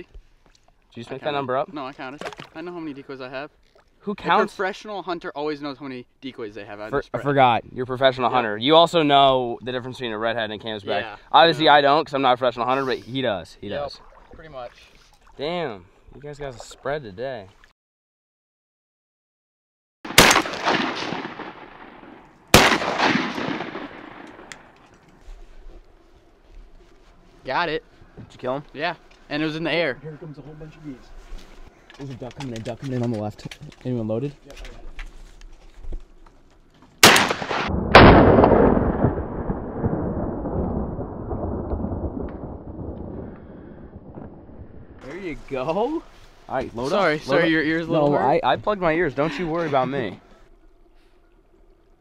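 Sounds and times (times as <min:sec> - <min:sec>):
shotgun blasts with echo: 0:20.1 - 0:24.7, 0:37.0 - 0:39.6
long rumbling noise: 0:37.7 - 0:45.0.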